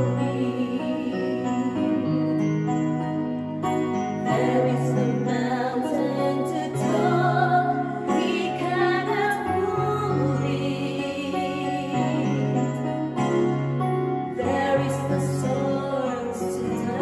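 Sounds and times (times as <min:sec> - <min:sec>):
women singing: 0:00.0 - 0:02.0, 0:04.2 - 0:12.8, 0:14.3 - 0:17.0
electronic keyboard: 0:00.0 - 0:17.0.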